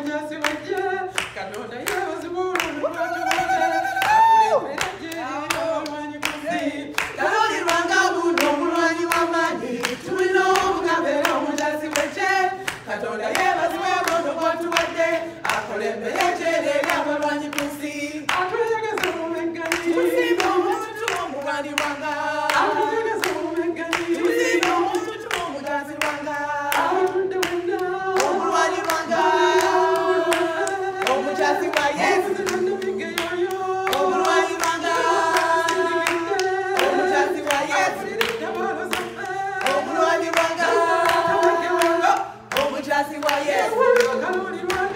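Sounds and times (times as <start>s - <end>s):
hand clapping: 0.0s - 44.9s
women singing together: 0.0s - 44.9s.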